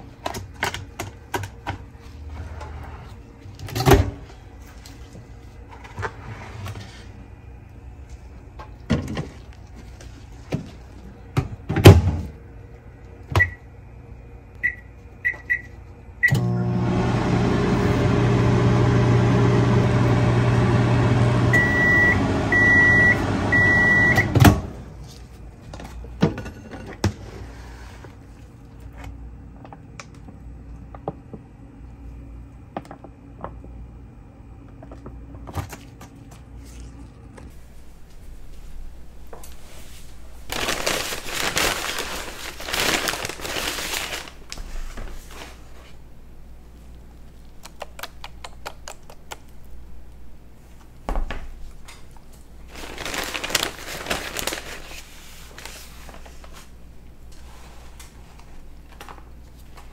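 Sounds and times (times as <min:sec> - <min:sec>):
microwave oven humming: 0:00.0 - 0:39.5
microwave end beeps: 0:13.3 - 0:13.7, 0:14.6 - 0:24.8.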